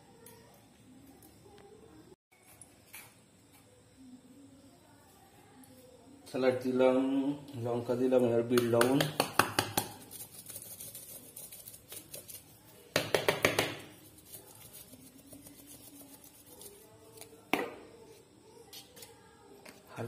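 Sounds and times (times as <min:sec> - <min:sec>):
spice shakers rattling: 0:09.0 - 0:17.5.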